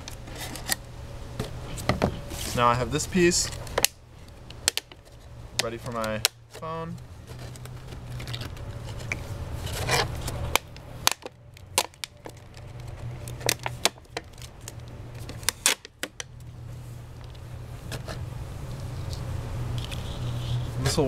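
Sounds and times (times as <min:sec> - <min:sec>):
plastic crackling and snapping: 0:03.4 - 0:16.5.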